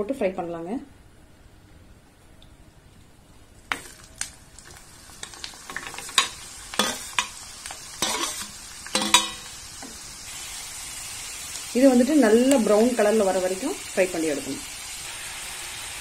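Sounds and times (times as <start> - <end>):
oil sizzling: 3.3 - 16.0
skimming spoon clinking on steel: 9.0 - 9.5.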